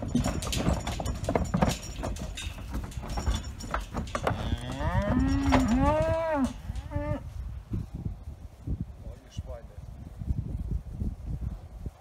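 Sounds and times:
hooves on wooden ramp: 0.0 - 6.2
bull mooing: 4.2 - 7.2.

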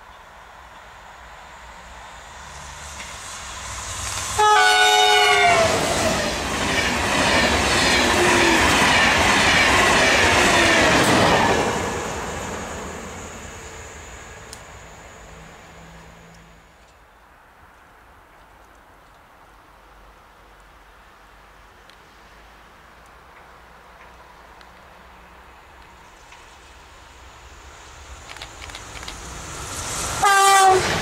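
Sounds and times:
high-speed train passing: 0.0 - 18.1, 20.8 - 31.0
train horn blast: 4.3 - 6.2, 30.2 - 31.0.

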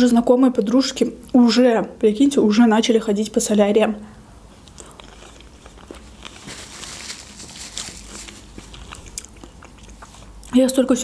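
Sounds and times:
chewing mouth clicks: 4.6 - 6.5, 8.5 - 10.6.

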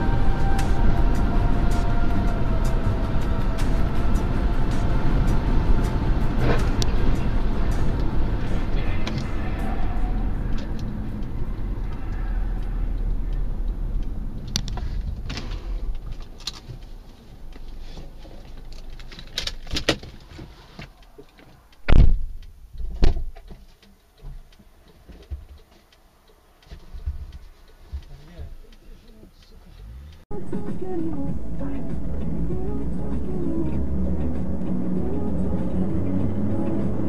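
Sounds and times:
road and engine noise in car: 0.0 - 37.0.

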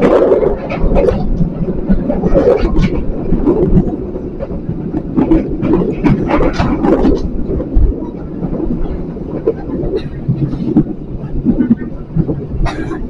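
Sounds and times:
train rumbling on rails: 0.0 - 13.0
wheels clattering and rattling: 0.0 - 13.0.

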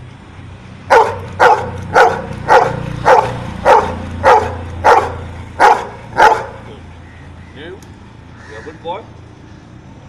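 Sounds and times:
dog barking sharply: 0.9 - 6.7.

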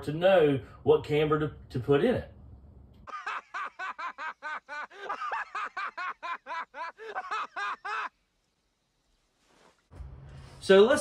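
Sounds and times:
man laughing: 3.1 - 8.2.

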